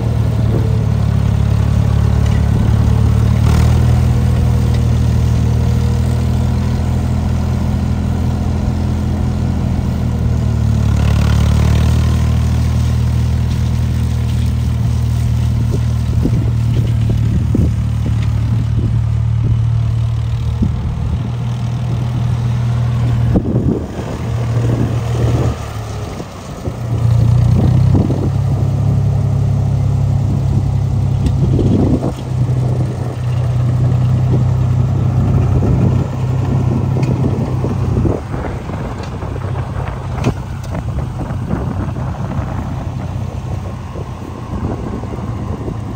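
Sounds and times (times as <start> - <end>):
tractor engine running: 0.0 - 45.9.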